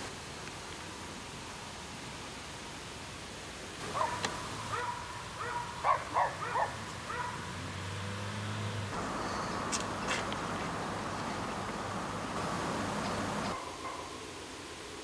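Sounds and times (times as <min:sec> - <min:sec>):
steady outdoor hiss: 0:00.0 - 0:15.0
dog barking: 0:03.8 - 0:07.8, 0:13.5 - 0:14.3
low steady hum: 0:03.8 - 0:13.6.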